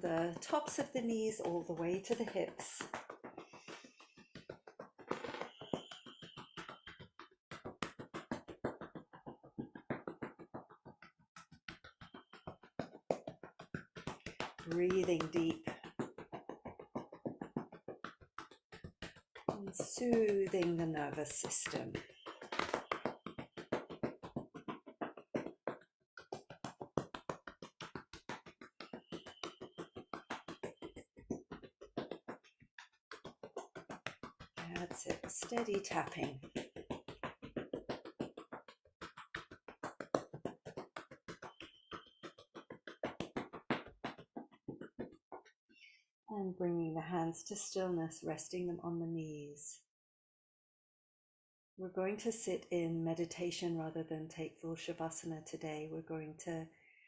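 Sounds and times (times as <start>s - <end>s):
hands slapping thighs: 2.1s - 45.5s.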